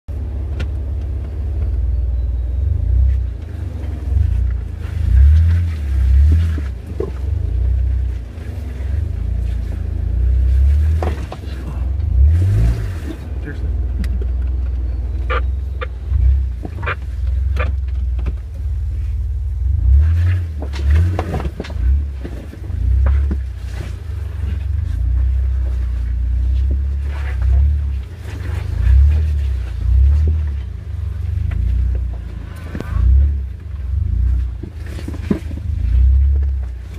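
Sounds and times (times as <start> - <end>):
engine low rumble: 0.0 - 36.9
knocks and clunks over rocks: 3.0 - 18.7, 20.0 - 36.9.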